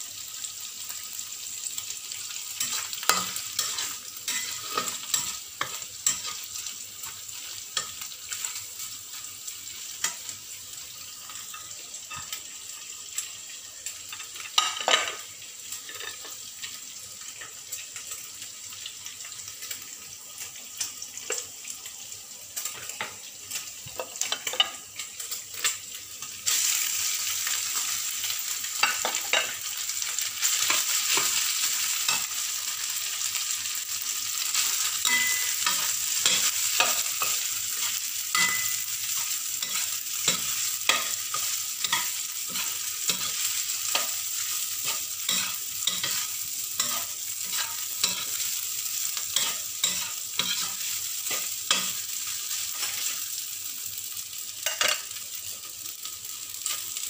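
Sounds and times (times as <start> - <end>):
rice sizzling in hot oil: 0.0 - 57.0
utensil scraping a wok: 2.6 - 6.6, 34.5 - 53.2.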